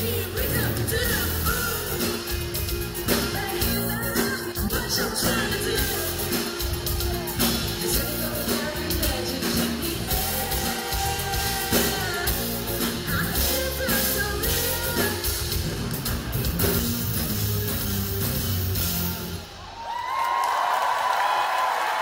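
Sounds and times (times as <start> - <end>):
live rock pop band: 0.0 - 19.6
woman singing into microphone: 3.3 - 6.3, 7.8 - 15.4.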